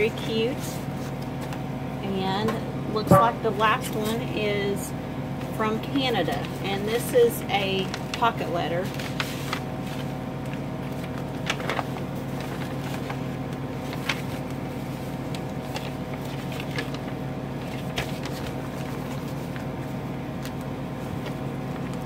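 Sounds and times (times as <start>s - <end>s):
low electrical hum: 0.0s - 22.0s
paper rustling: 7.7s - 22.0s.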